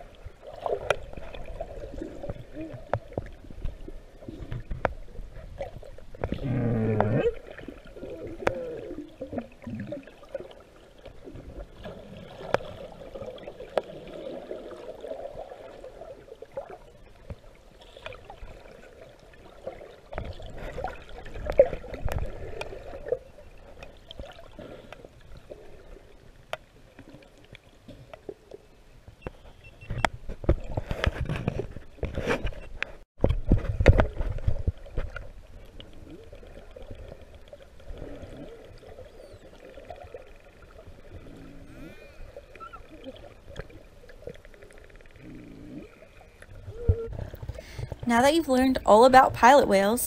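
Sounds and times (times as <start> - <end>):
underwater gurgle: 0.0 - 28.6, 29.4 - 50.0
whale wavering calls: 41.6 - 43.4, 45.2 - 47.3
whale clicks: 41.7 - 48.1.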